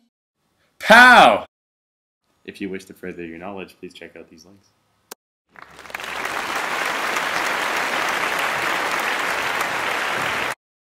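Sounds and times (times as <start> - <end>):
audience applause: 5.5 - 10.6.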